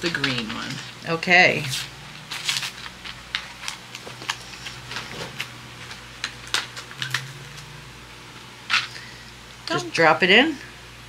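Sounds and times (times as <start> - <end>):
packaging rustling: 1.6 - 7.7.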